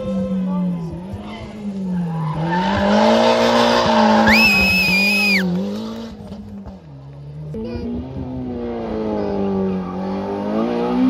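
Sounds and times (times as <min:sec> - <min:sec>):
car engine revving: 0:00.0 - 0:11.0
tyre squeal: 0:04.0 - 0:05.5.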